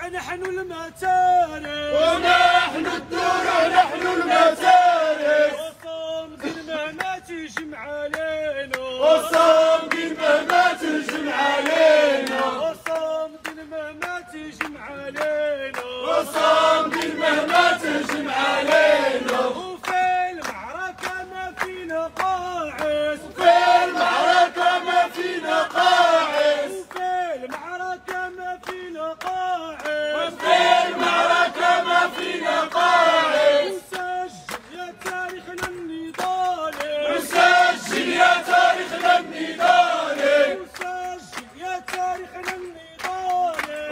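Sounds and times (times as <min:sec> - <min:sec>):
crowd chanting slogans: 0:00.9 - 0:43.9
hand clapping: 0:05.8 - 0:24.1, 0:26.9 - 0:32.8, 0:33.9 - 0:43.9.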